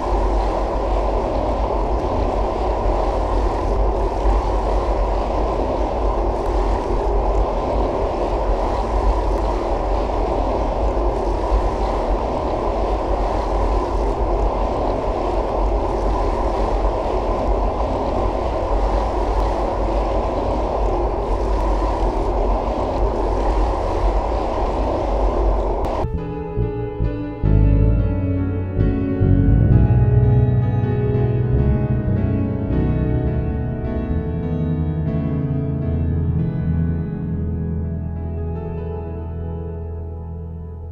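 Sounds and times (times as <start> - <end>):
churning water rushing: 0.0 - 26.1
piano music: 26.0 - 40.9.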